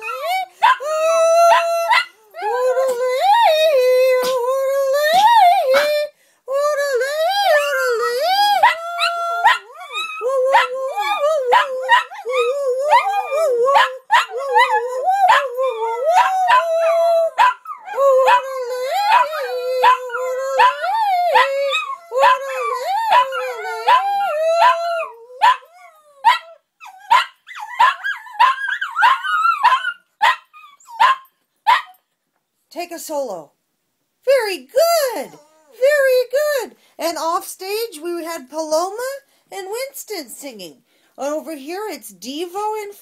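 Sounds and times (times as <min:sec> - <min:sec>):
small dogs howling: 0:00.0 - 0:04.4, 0:07.2 - 0:31.2
dogs yipping and barking: 0:08.6 - 0:18.4, 0:19.1 - 0:32.0.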